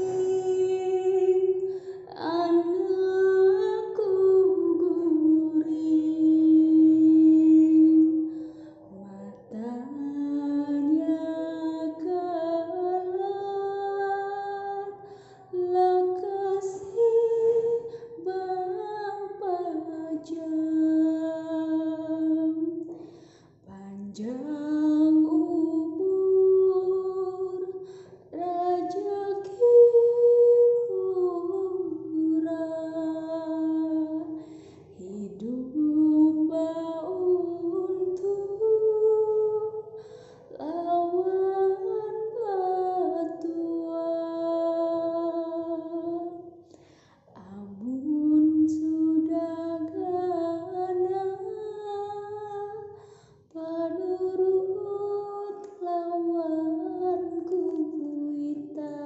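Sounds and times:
woman singing a slow lullaby: 0.0 - 59.0.

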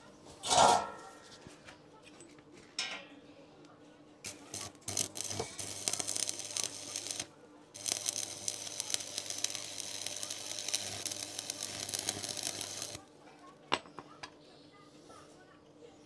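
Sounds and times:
arc welding crackling sizzle: 4.2 - 13.0.

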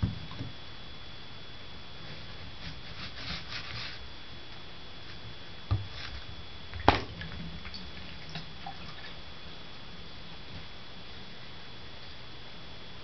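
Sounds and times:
cat scratching at drain: 2.3 - 4.0.

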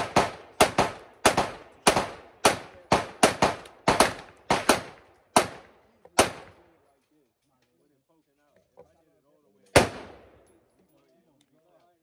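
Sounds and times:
pistol shots with echo: 0.0 - 6.8, 9.7 - 10.4.

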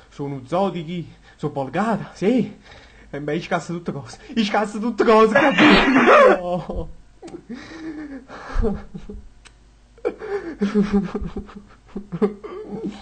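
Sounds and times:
man's breathy laugh-like vocal sounds: 5.4 - 6.4, 7.4 - 9.2, 10.0 - 13.0.

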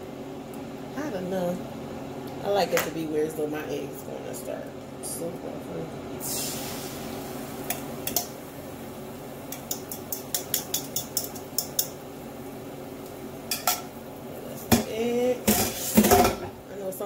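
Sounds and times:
low steady hum: 0.0 - 17.0
metal utensil tapping a bowl: 9.5 - 11.9.

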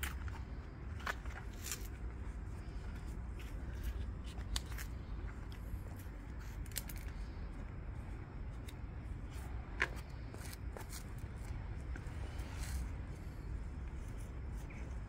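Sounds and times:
leaves rustling and stems snapping: 0.0 - 2.0
low steady rumble: 0.0 - 15.0.

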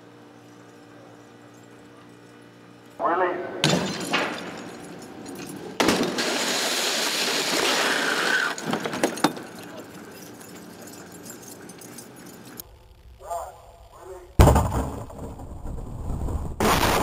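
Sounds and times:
helicopter crash impact: 3.0 - 9.0, 14.4 - 15.9
rumble of settling debris: 3.7 - 10.3, 14.4 - 16.6.

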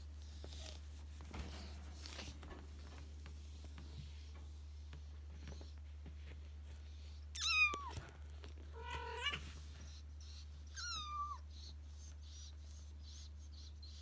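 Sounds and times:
kitten meowing: 7.4 - 8.0.

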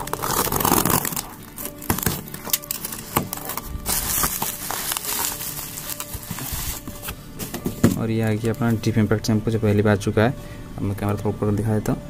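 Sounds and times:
bubble wrap crinkling: 0.0 - 9.1.

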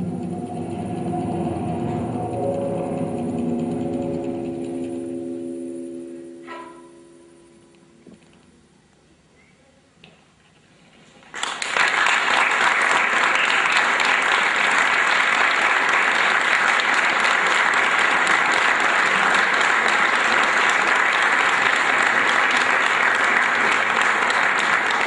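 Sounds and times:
audience applause: 11.3 - 25.0.

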